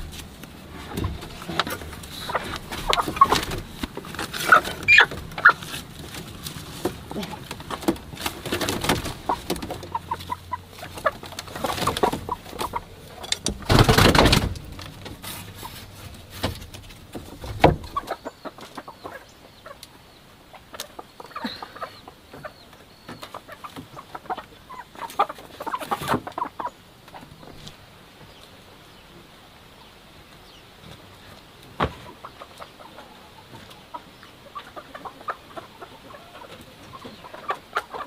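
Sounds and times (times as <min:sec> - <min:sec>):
straw rustling and crackling: 0:00.0 - 0:18.3
hens clucking: 0:00.0 - 0:38.0.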